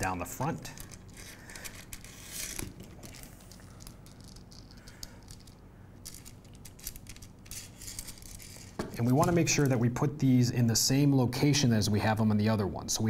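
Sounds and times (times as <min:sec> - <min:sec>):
small metal parts clicking: 0:00.5 - 0:09.7.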